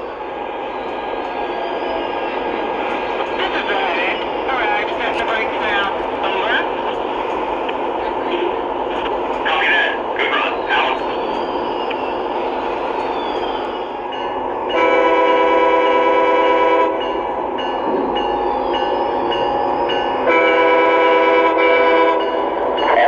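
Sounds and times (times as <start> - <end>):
model train running: 0.0 - 23.0
model train horn blasts: 14.7 - 17.0, 20.2 - 22.4.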